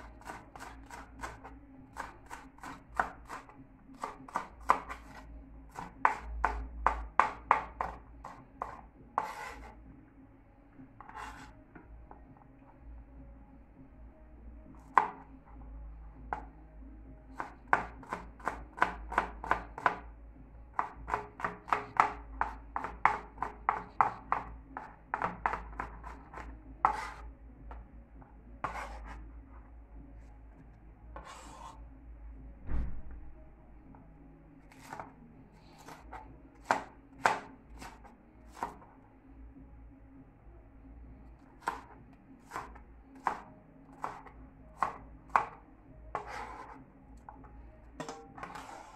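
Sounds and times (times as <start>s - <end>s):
knife chopping on plastic board: 0.0s - 9.8s, 14.8s - 15.3s, 17.3s - 20.1s, 20.8s - 27.8s, 28.6s - 29.2s, 31.2s - 31.8s, 34.7s - 35.1s, 35.7s - 38.8s, 41.6s - 46.8s, 48.0s - 48.9s.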